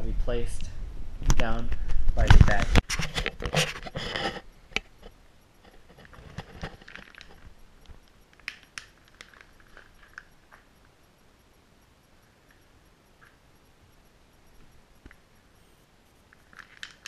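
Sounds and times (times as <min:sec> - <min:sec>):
small objects clicking and rustling: 0:02.2 - 0:10.9, 0:16.3 - 0:17.0.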